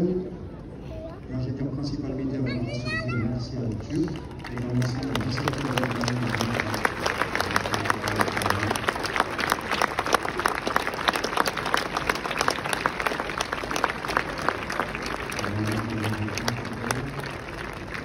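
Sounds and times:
crowd applauding: 3.8 - 18.0.

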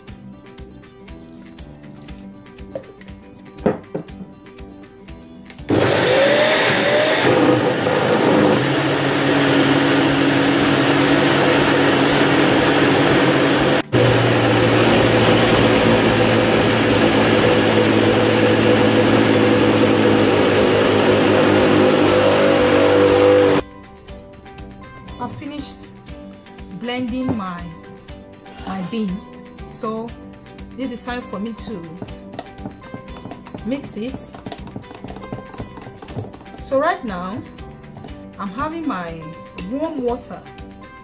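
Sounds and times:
blender running: 5.7 - 23.6, 32.0 - 36.6.

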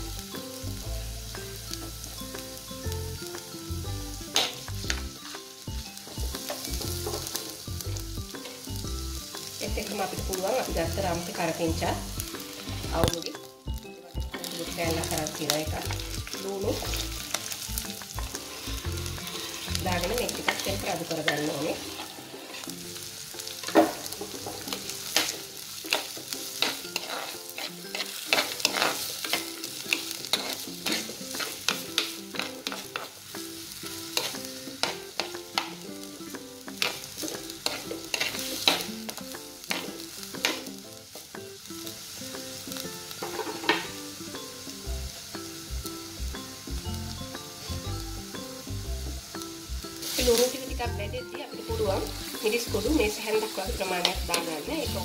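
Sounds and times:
food sizzling in hot oil: 0.0 - 55.0
spatula scraping and tapping pot: 6.4 - 7.5, 23.6 - 33.2, 36.7 - 40.7, 43.2 - 43.9.

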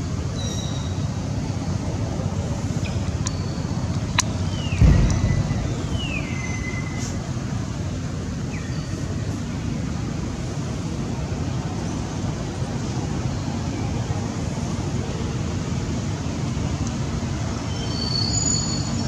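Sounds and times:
low rumbling outdoor noise: 0.0 - 19.0.

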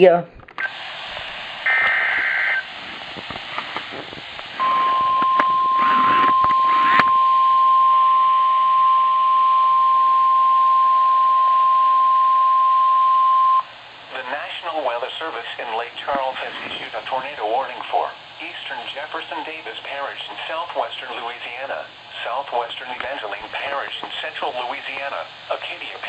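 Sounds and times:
warbling data tones: 4.6 - 13.6
steady warning alarm tone: 4.6 - 13.7.

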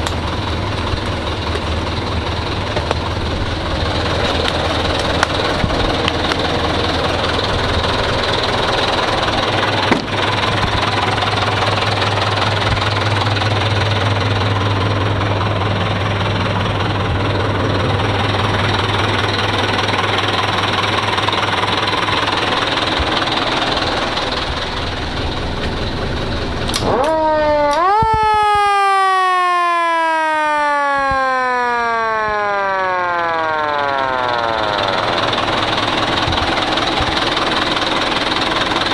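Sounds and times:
truck engine humming: 0.0 - 38.9
motor siren wailing: 26.7 - 38.3.

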